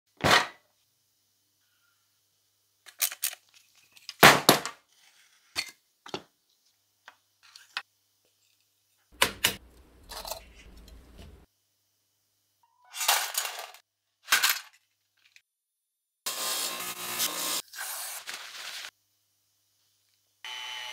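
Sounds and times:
clicks and knocks of metal parts: 2.9s - 4.2s
metal rubbing and scraping: 9.6s - 11.5s.

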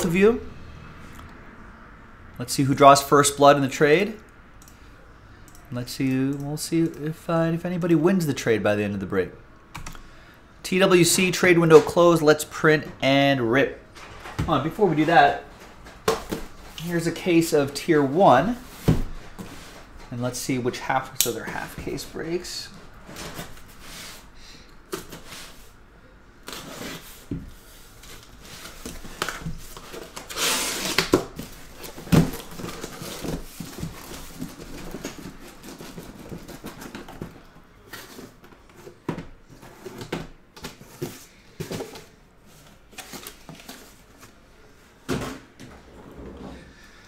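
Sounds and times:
cardboard scraping and rustling: 26.5s - 44.4s.

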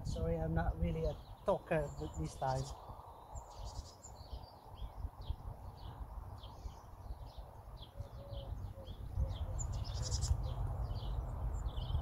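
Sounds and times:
small birds chirping: 0.0s - 12.0s
steady low rumble: 4.2s - 12.0s.

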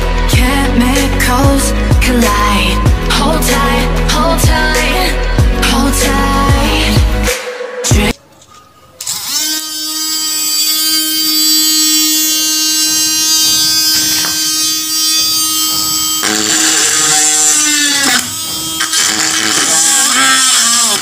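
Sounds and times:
small drill motor whining: 9.0s - 21.0s.

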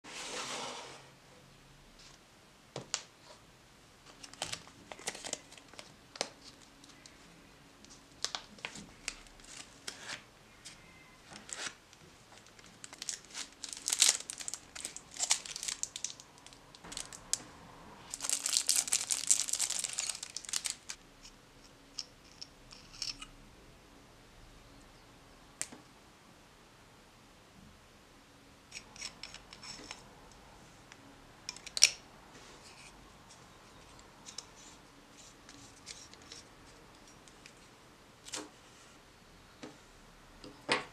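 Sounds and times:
packaging rustling: 4.1s - 7.1s, 11.3s - 17.3s, 18.1s - 21.0s.

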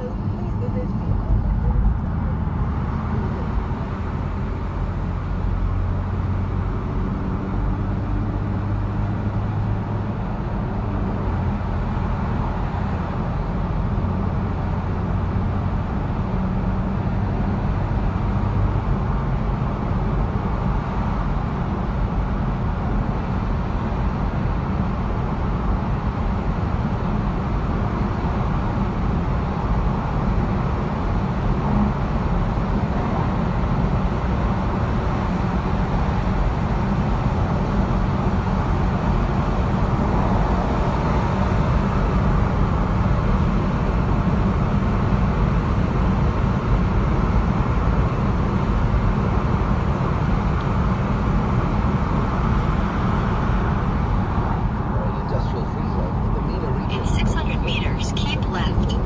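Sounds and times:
car tyre and engine noise: 0.0s - 58.4s.

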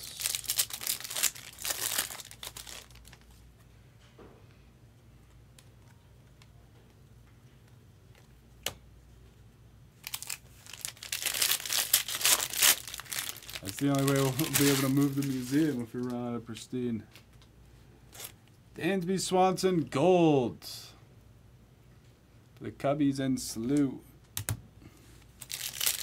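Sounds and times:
card pack wrappers crinkling: 0.0s - 3.4s, 10.0s - 16.2s, 18.1s - 18.5s, 25.2s - 26.0s.

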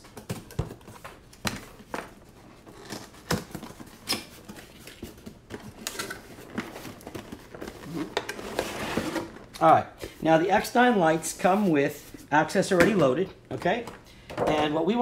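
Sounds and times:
packaging being opened by hand: 0.1s - 9.8s.

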